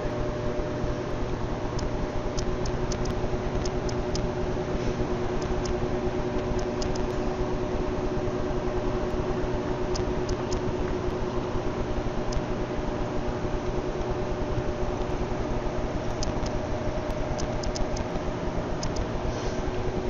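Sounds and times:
steady mechanical hum with hiss: 0.0 - 20.0
faint high ticks: 1.8 - 4.2, 6.4 - 7.2, 9.9 - 11.4, 16.1 - 18.2, 18.8 - 19.1.

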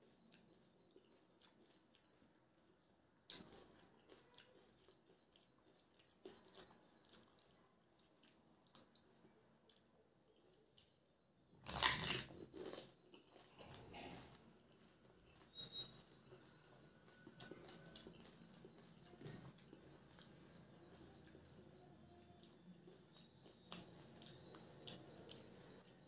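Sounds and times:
crunchy chewing: 0.0 - 26.0
crisp shell crunching bite: 11.6 - 14.3.

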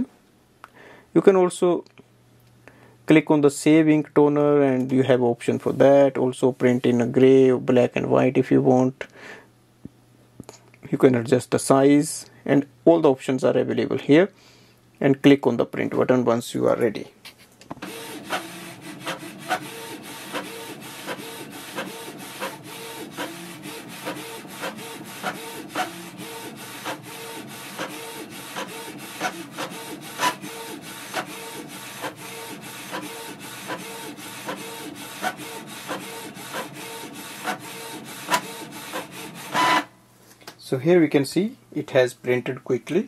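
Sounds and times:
printer mechanical whir: 17.8 - 39.9
printer clicks: 37.4 - 39.9.

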